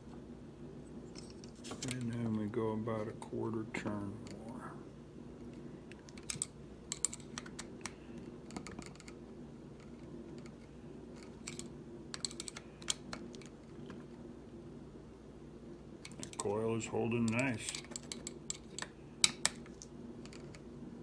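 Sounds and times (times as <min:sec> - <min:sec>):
low steady hum: 0:00.0 - 0:21.0
hex driver clicking on metal parts: 0:17.2 - 0:20.6.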